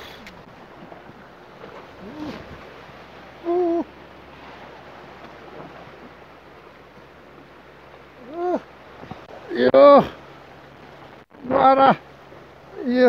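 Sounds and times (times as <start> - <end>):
surf: 0.0 - 13.0
wind: 0.0 - 13.0
man's wordless vocal exclamations: 3.4 - 3.9, 8.2 - 8.6, 11.4 - 12.0.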